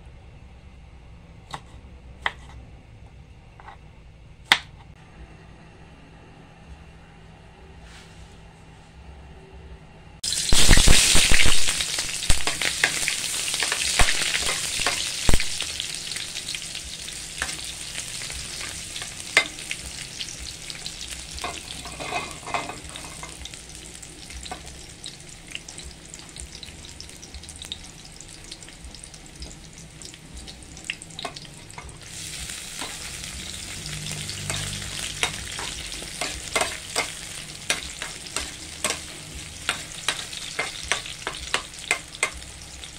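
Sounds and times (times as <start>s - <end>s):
frying crackles and pops: 10.2s - 42.9s
onions sizzling in hot oil: 10.2s - 42.9s.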